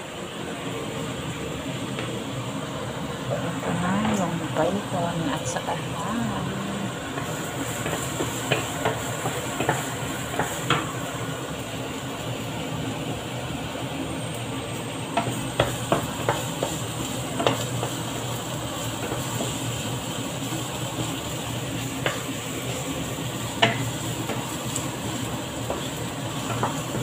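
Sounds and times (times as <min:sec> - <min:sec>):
food sizzling in a wok: 0:00.0 - 0:27.0
spatula tapping and scraping pan: 0:07.1 - 0:10.9, 0:15.1 - 0:18.2, 0:19.0 - 0:22.8, 0:23.4 - 0:27.0.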